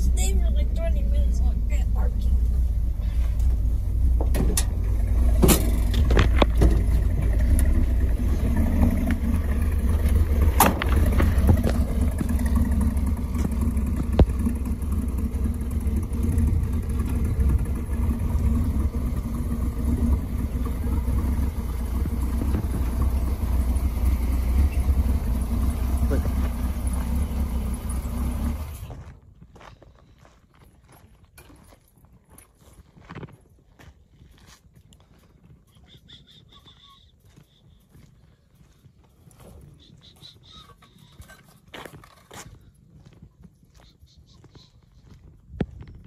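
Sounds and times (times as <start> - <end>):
truck engine rumbling: 0.0 - 29.6, 38.4 - 43.2.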